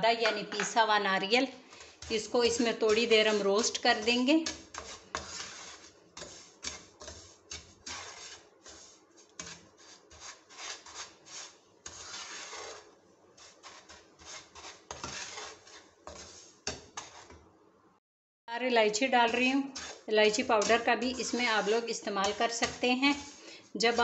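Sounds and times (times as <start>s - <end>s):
spatula scraping frying pan: 1.7s - 17.5s, 18.8s - 24.0s
spatula tapping pan: 2.0s - 12.8s, 13.4s - 17.4s, 22.2s - 24.0s.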